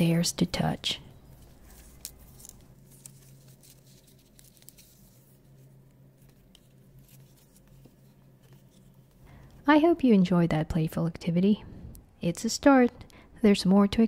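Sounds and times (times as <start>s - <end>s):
low steady hum: 0.0s - 14.0s
paper pages rustling: 1.3s - 9.2s.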